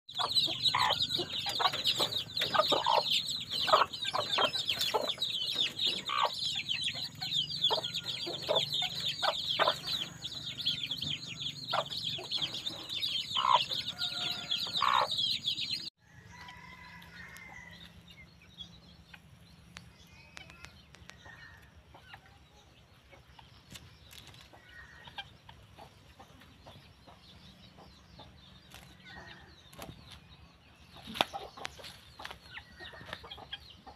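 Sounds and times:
hen clucking: 0.1 - 15.9, 30.9 - 33.9
chicks peeping: 0.1 - 33.9.

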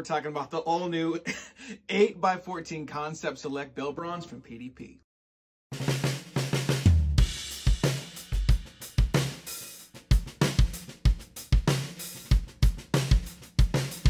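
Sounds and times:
snare drum strokes: 5.7 - 9.7
cymbal and hi-hat hits: 5.8 - 14.0
bass drum thumps: 6.6 - 9.3.

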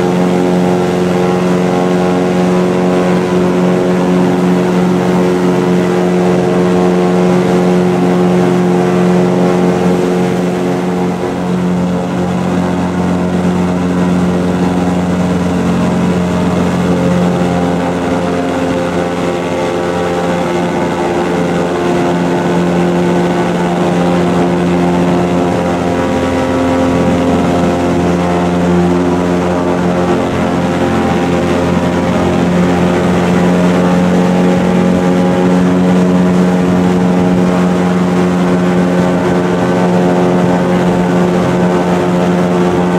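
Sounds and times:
airboat engine droning: 0.0 - 42.9.

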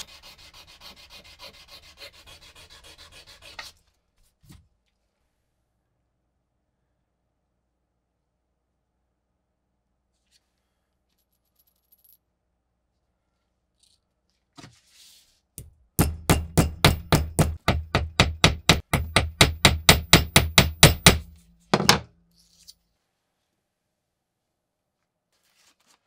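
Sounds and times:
hammer striking metal washer: 15.6 - 22.2.

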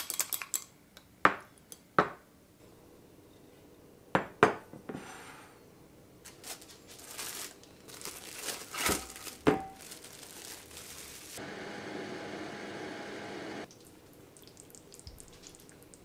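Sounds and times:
cling wrap crinkling: 6.2 - 11.4.

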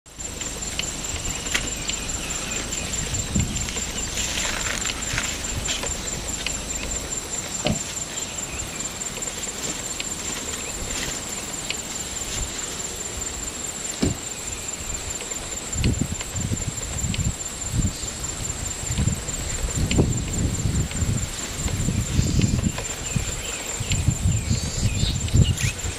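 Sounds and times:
steady high hum: 0.1 - 25.9
elephant chewing: 0.3 - 13.8.

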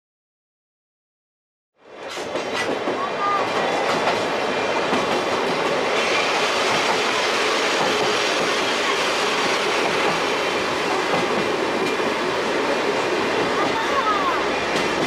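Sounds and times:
train wheels running on rails: 1.8 - 15.0.

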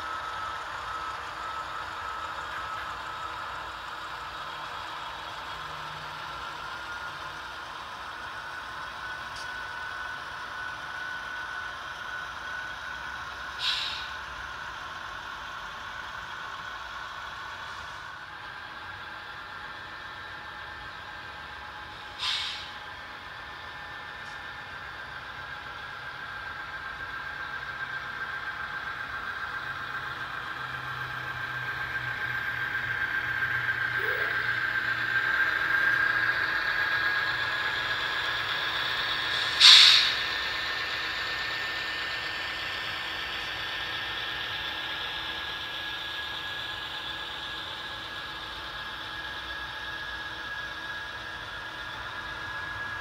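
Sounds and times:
model train running with whine: 0.0 - 53.0.

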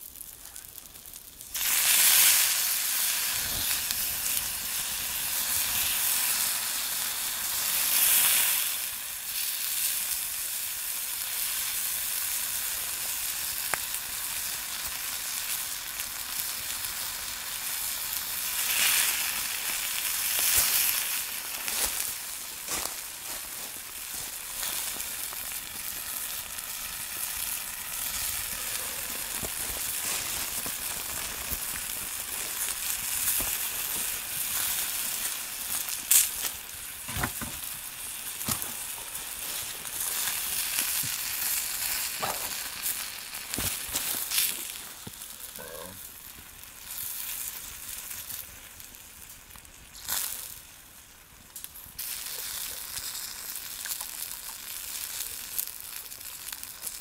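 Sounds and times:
wood fire sizzling and crackling: 0.0 - 57.0
sharp pops: 42.1 - 45.2.

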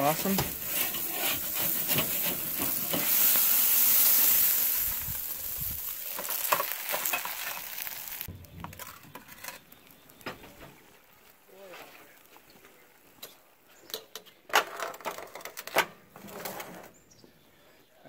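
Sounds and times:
metal spatula scraping grill: 0.0 - 5.2, 6.0 - 9.7
fish sizzling on grill: 0.0 - 12.5.

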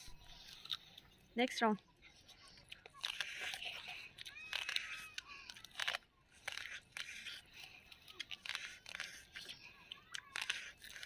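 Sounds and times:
crunching and chewing raw corn: 0.0 - 11.0.

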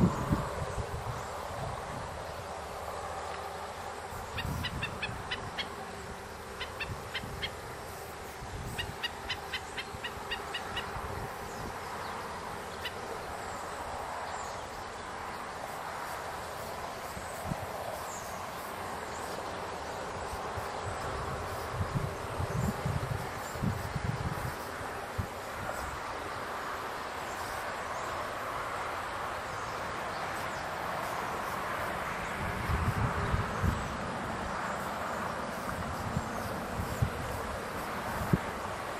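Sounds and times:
wind rumble on microphone: 0.0 - 12.6, 16.8 - 26.5, 31.9 - 38.9
bird yipping alarm calls: 4.3 - 5.7, 8.7 - 11.0.

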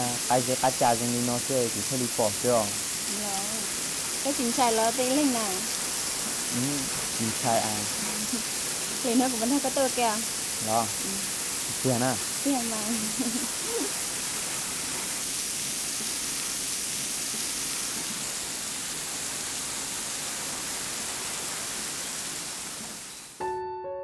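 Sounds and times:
falling water hiss: 0.0 - 23.4
soft piano music: 23.4 - 24.0.

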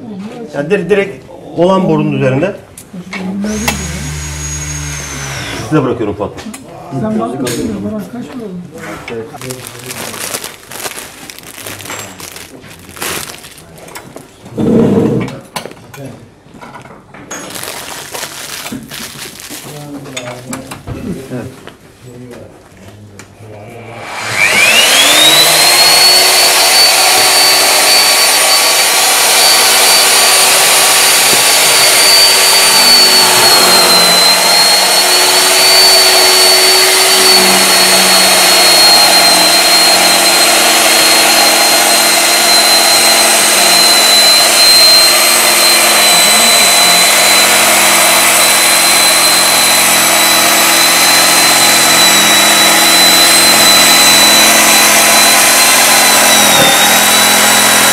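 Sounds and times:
electric motor whine: 3.2 - 5.9, 23.8 - 57.9
cutting head bevelling steel pipe: 24.2 - 57.9.

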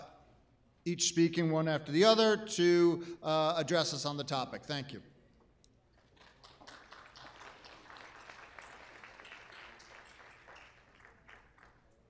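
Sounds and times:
faint audience applause: 6.0 - 12.0.

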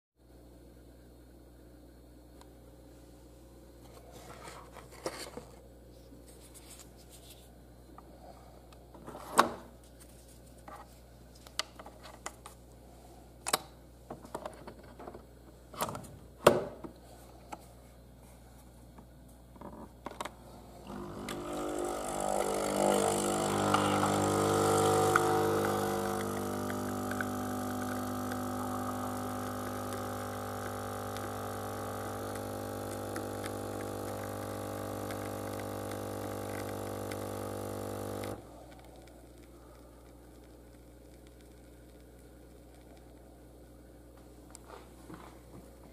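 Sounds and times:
espresso machine pump buzzing hum: 20.4 - 44.2.

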